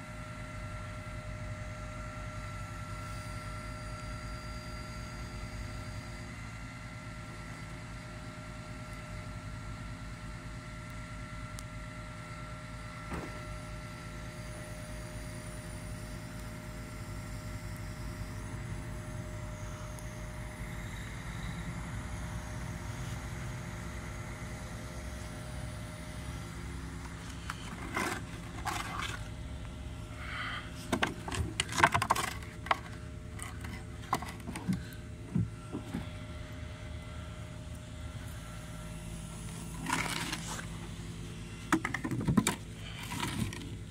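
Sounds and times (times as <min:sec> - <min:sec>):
crane hydraulic whine: 0:00.0 - 0:43.9
truck engine rumbling: 0:18.3 - 0:43.9.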